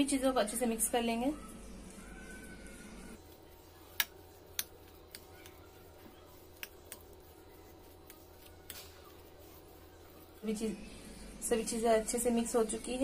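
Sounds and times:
spoon stirring thick mixture: 0:03.2 - 0:13.0.

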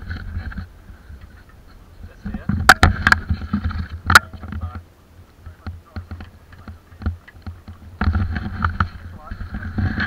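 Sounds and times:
kayak knocking on wooden boards: 0:02.2 - 0:04.9, 0:05.5 - 0:10.0.

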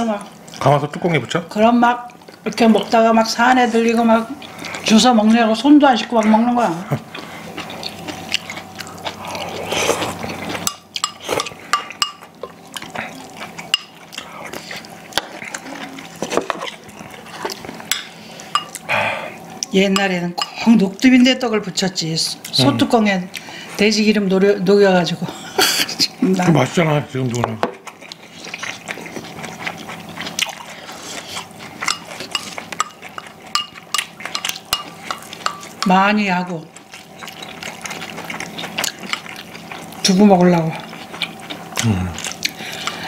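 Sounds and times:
wet chewing and mouth noises: 0:00.4 - 0:03.0, 0:03.8 - 0:19.8, 0:27.2 - 0:43.0
spoons and chopsticks clinking on bowls: 0:10.5 - 0:12.6, 0:13.7 - 0:14.0, 0:20.0 - 0:20.7, 0:31.8 - 0:36.1.

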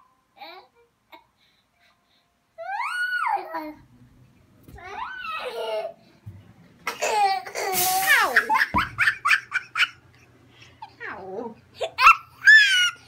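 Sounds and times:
young child laughing: 0:06.9 - 0:10.0, 0:11.8 - 0:13.0.

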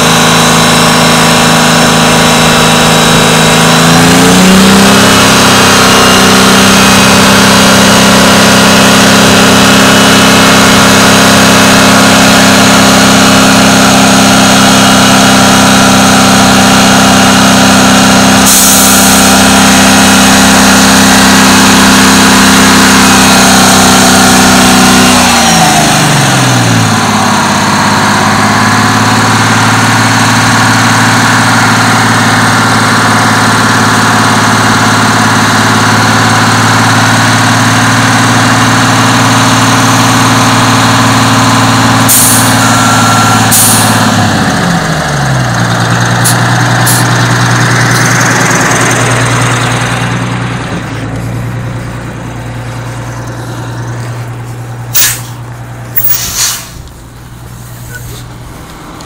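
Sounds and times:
diesel engine revving and idling: 0:00.0 - 0:59.0
short air hiss: 0:18.5 - 0:19.3, 0:54.9 - 0:55.4, 0:56.0 - 0:56.9.

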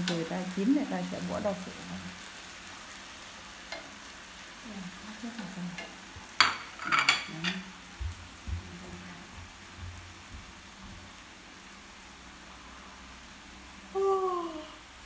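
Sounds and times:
meat sizzling in a frying pan: 0:00.0 - 0:15.0
chopsticks clacking against pan: 0:03.7 - 0:04.0, 0:05.7 - 0:07.7.

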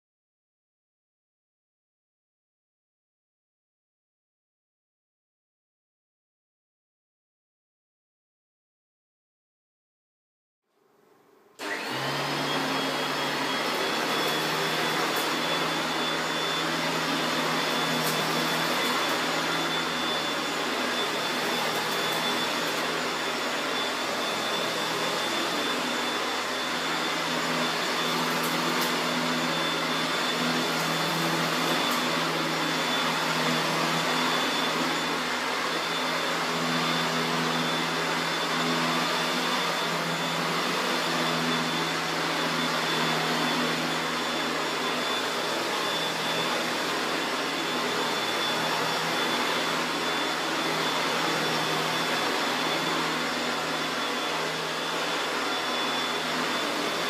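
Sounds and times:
vacuum cleaner running over carpet: 0:11.6 - 0:57.0.

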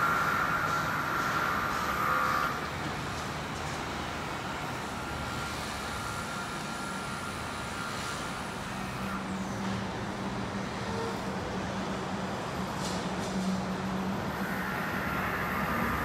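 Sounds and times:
urban traffic noise: 0:00.0 - 0:16.0.

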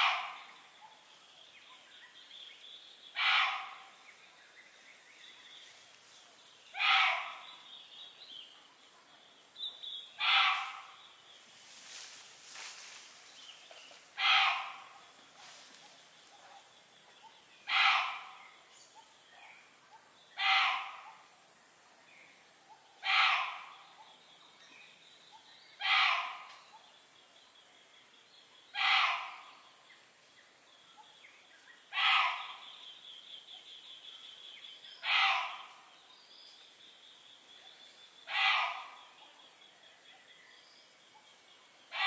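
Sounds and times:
animal call: 0:00.0 - 0:00.6, 0:03.1 - 0:04.0, 0:06.7 - 0:07.6, 0:10.2 - 0:11.0, 0:14.2 - 0:15.1, 0:17.3 - 0:18.5, 0:20.4 - 0:21.3, 0:23.0 - 0:24.0, 0:25.8 - 0:26.6, 0:28.7 - 0:29.6, 0:31.9 - 0:32.8, 0:35.0 - 0:35.9, 0:38.2 - 0:39.4.

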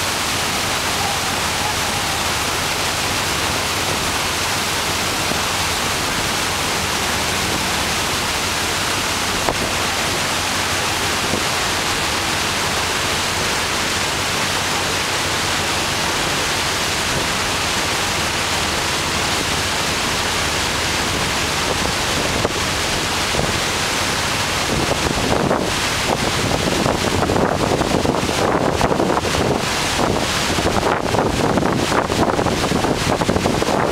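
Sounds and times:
boat wake water rushing: 0:00.0 - 0:33.9
wind on microphone: 0:21.0 - 0:33.9.

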